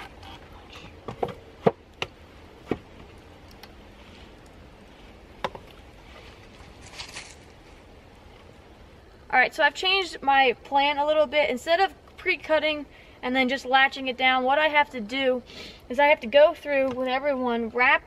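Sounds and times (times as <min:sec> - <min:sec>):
brief rustle: 0:06.1 - 0:07.8.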